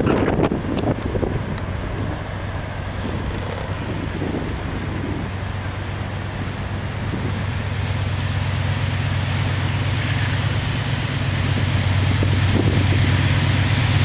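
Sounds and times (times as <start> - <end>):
wind on microphone: 0.0 - 7.7, 11.3 - 13.6
diesel locomotive engine drone: 0.0 - 14.0.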